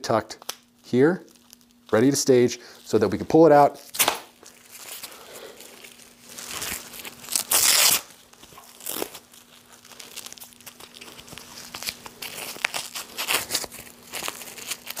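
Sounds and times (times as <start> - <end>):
strap rustling and scraping: 3.8 - 15.0
hook-and-loop strap ripping: 3.9 - 5.0, 6.4 - 9.2.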